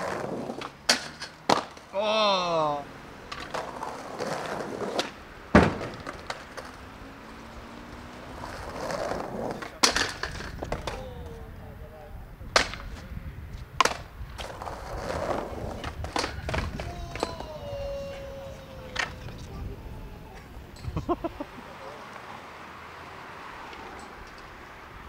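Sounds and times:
skateboard clacking on ground: 0.0 - 2.0, 3.3 - 6.9, 8.4 - 11.7, 12.4 - 21.1
skateboard wheels rolling on paving: 0.0 - 25.0.

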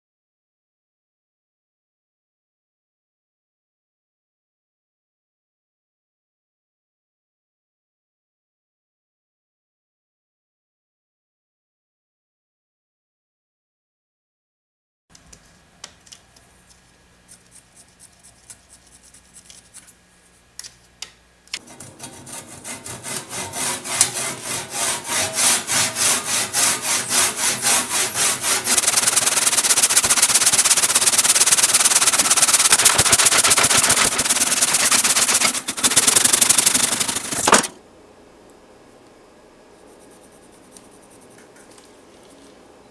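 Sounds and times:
handsaw sawing log: 21.6 - 37.7.

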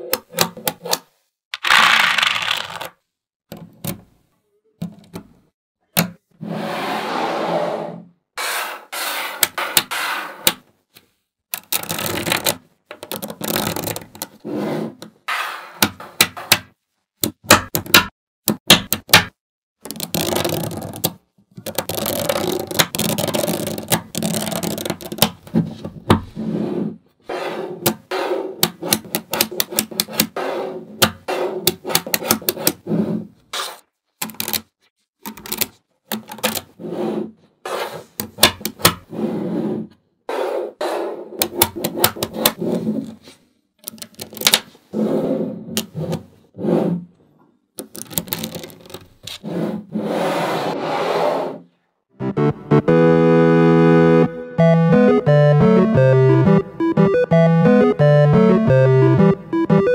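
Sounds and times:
magnetic balls clicking and rattling: 19.8 - 25.4, 47.8 - 49.3.

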